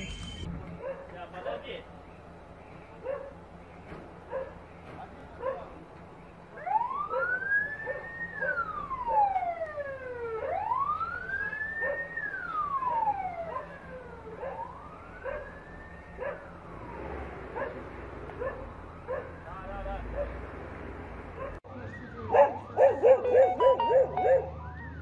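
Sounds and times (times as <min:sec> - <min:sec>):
dog barking: 0:00.8 - 0:01.6, 0:03.0 - 0:03.4, 0:04.3 - 0:04.6, 0:05.4 - 0:05.7, 0:07.1 - 0:08.7, 0:11.8 - 0:12.1, 0:14.4 - 0:15.5, 0:16.2 - 0:16.5, 0:17.6 - 0:19.4, 0:20.1 - 0:20.4, 0:21.4 - 0:21.6, 0:22.3 - 0:24.6
ambulance siren wailing: 0:06.5 - 0:20.2, 0:21.7 - 0:25.0.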